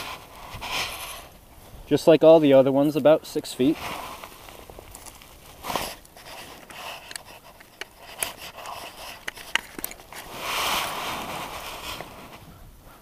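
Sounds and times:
clothing rubbing on camera: 0:00.0 - 0:01.4, 0:03.6 - 0:12.6
small clicks and scrapes: 0:00.0 - 0:01.4, 0:03.8 - 0:12.5.

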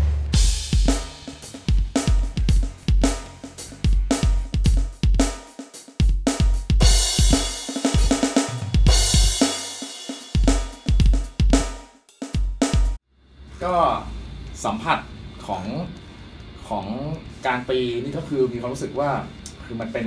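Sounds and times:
crash cymbal hits: 0:00.0 - 0:05.5, 0:06.8 - 0:11.3
electronic drum groove: 0:00.0 - 0:13.0.

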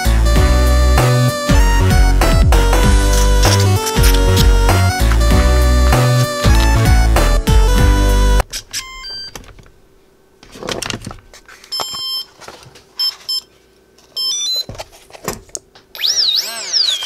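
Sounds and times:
short electronic beeps: 0:16.0 - 0:17.0.

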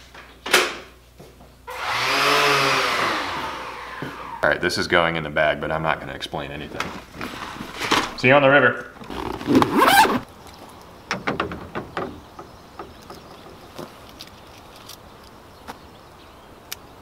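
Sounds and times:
handling rustles: 0:06.7 - 0:10.9
zipper drawn shut: 0:09.0 - 0:10.3.

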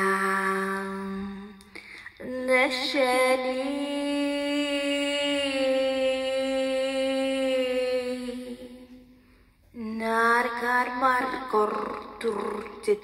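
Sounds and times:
breath: 0:01.6 - 0:02.2, 0:09.0 - 0:09.7.

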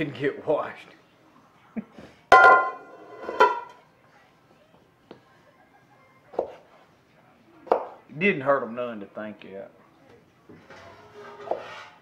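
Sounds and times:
metal bowl clanging and ringing: 0:02.4 - 0:03.7.

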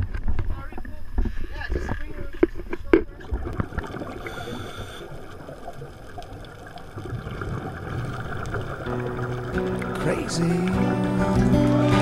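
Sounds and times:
muffled underwater trickling: 0:00.0 - 0:12.0
scuba regulator bubbles: 0:02.5 - 0:12.0.

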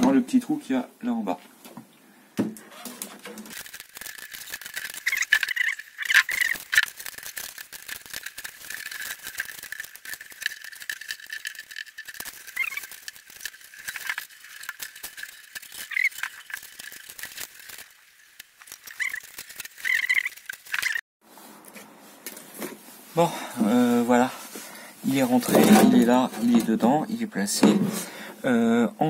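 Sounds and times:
short squeaks: 0:02.6 - 0:03.5, 0:12.4 - 0:12.9
ball rattling in plastic jerrycan: 0:02.8 - 0:17.7.

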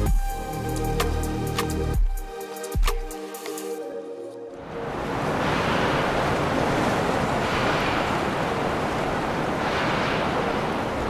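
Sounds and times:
rushing wind and water: 0:02.8 - 0:11.0.

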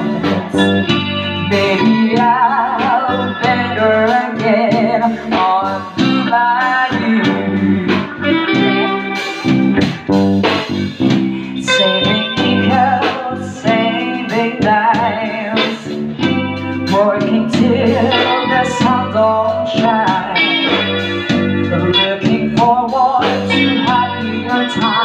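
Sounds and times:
lead electric guitar bending notes: 0:00.0 - 0:25.0
live rock band playing: 0:00.0 - 0:25.0.

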